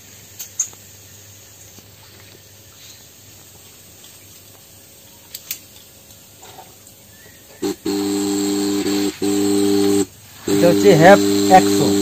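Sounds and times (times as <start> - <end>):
faint steady hum: 0.0 - 12.0
air pump humming: 7.6 - 12.0.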